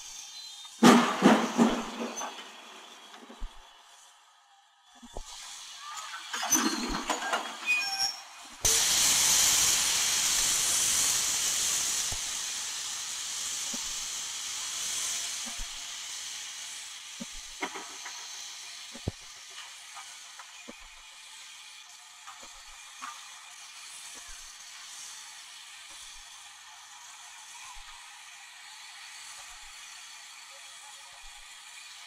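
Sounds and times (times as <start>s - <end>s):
loud steam hiss: 0.0s - 4.0s, 5.1s - 32.0s
brief high squeals: 5.7s - 8.4s.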